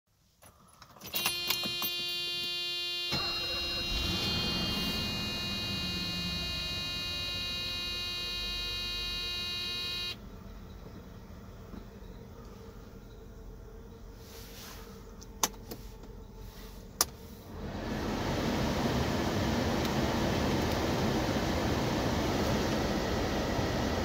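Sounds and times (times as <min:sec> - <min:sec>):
car engine starting and idling: 0:01.0 - 0:10.2, 0:17.5 - 0:24.0
electronic warning buzzer: 0:01.0 - 0:10.2.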